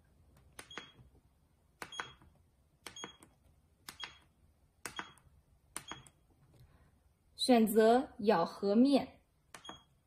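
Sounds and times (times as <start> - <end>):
keypad button clicks: 0.5 - 1.1, 1.8 - 6.2, 9.5 - 9.9.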